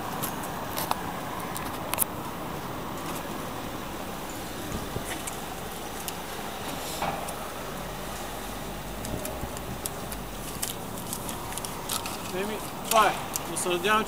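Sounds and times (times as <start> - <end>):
traffic hum: 0.0 - 14.0
light clicks and rustles: 0.2 - 2.4, 9.0 - 13.7.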